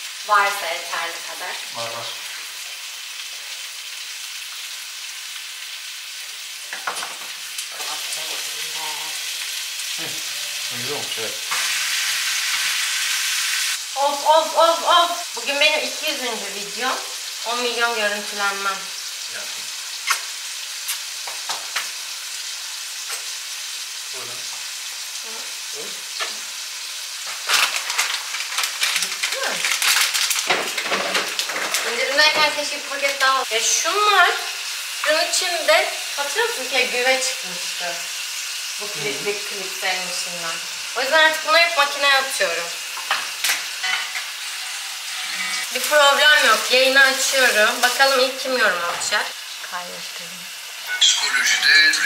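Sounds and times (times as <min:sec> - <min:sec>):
food sizzling in frying pan: 0:00.0 - 0:52.0.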